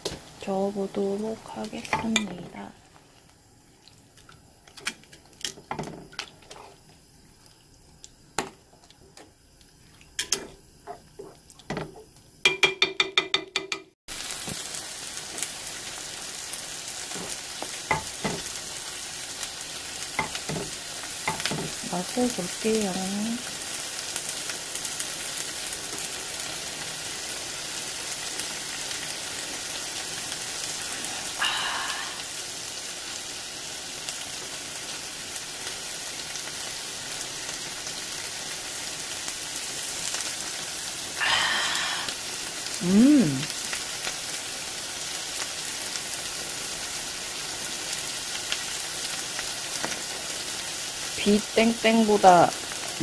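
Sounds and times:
soup boiling and bubbling: 1.4s - 12.5s, 23.0s - 51.4s
person humming: 41.2s - 42.1s, 42.8s - 43.5s.

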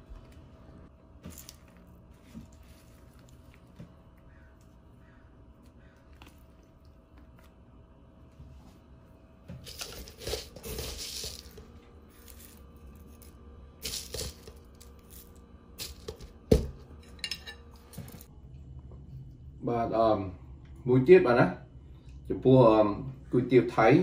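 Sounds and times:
herbs and shallots rustling: 1.1s - 7.8s, 9.6s - 16.4s.

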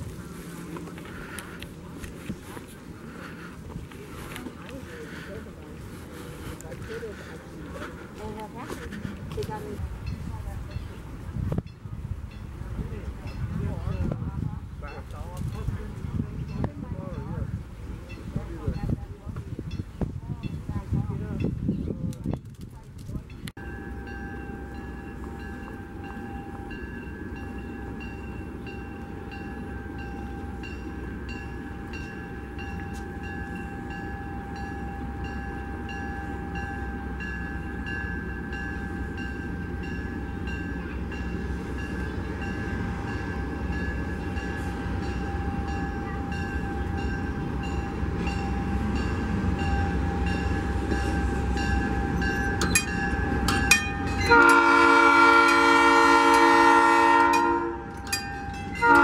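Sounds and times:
diesel locomotive engine rumble: 0.0s - 59.0s
train horn: 53.8s - 59.0s.

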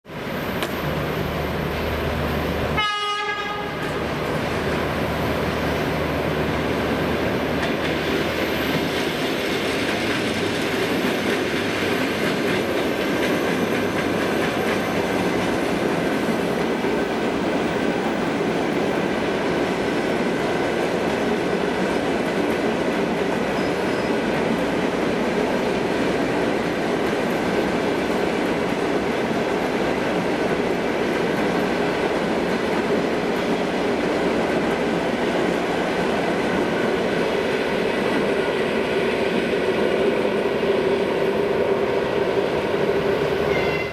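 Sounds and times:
train wheels rolling on rails: 0.1s - 43.9s.

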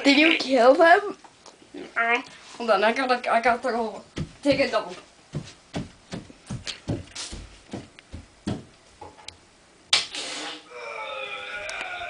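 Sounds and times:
footsteps walking: 4.0s - 9.3s
short hiss: 9.9s - 10.7s.

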